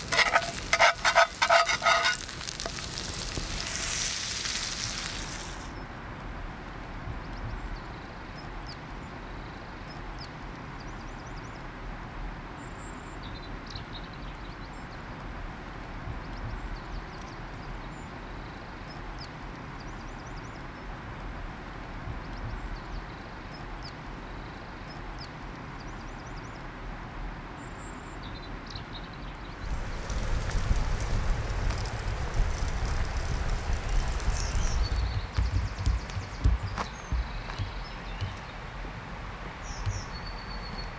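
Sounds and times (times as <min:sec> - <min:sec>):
small birds chirping and trilling: 0:27.6 - 0:38.8, 0:39.6 - 0:40.9
steady rushing background: 0:29.7 - 0:40.0.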